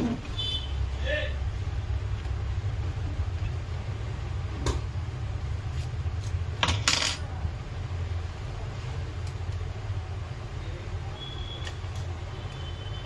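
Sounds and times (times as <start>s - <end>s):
small objects clinking on workbench: 6.6s - 7.2s.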